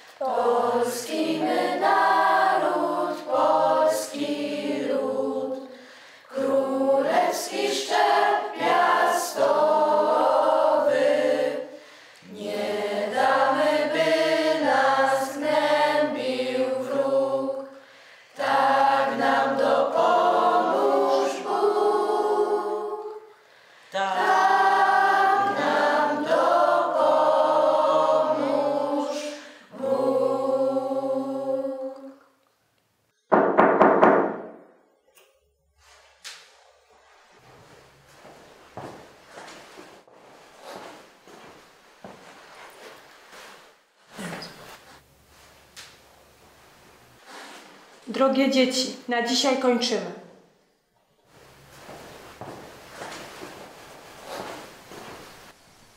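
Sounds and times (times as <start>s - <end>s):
group singing in chorus: 0.0s - 32.4s.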